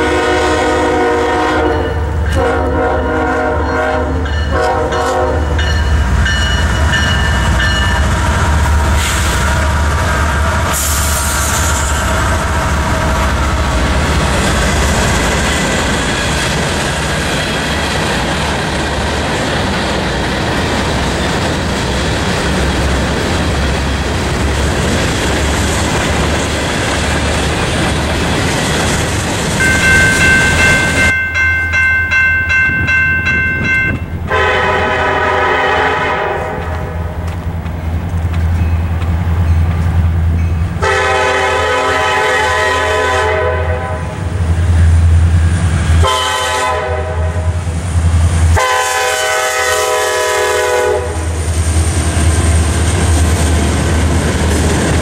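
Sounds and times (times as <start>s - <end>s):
locomotive air horn blasts: 0.0s - 5.7s, 34.3s - 37.0s, 40.8s - 44.1s, 46.0s - 47.6s, 48.5s - 51.4s
freight train cars clattering: 0.0s - 43.5s
locomotive rumbling past: 0.0s - 55.0s.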